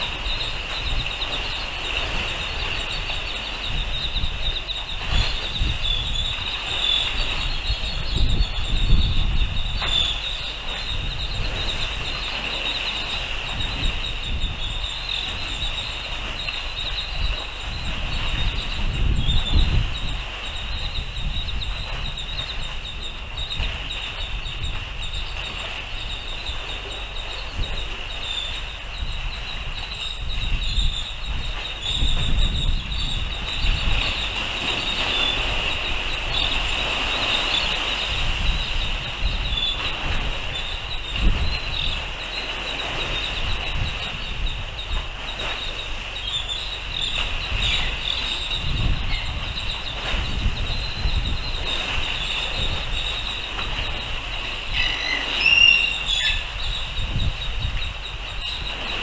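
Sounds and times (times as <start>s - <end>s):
steady high-pitched whine: 0.0s - 59.0s
wind buffeting microphone: 0.0s - 59.0s.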